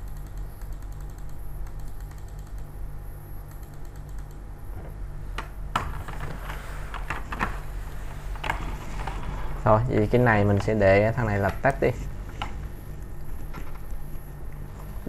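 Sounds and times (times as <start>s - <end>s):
keyboard and mouse clicks: 0.0s - 2.7s, 3.4s - 4.4s
low electrical hum: 0.0s - 15.0s.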